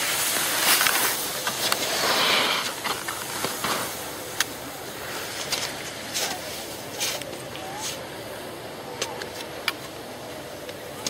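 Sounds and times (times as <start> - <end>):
skis scraping across snow: 0.0 - 8.0.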